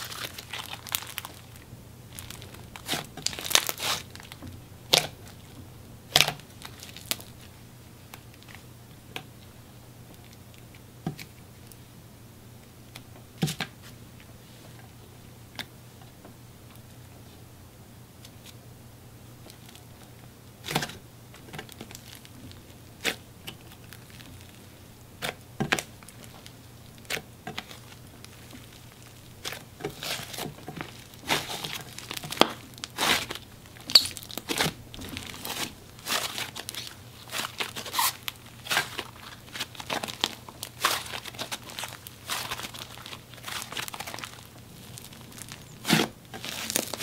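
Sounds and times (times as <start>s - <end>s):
slime squished by hand: 2.2s - 5.4s, 27.1s - 47.0s.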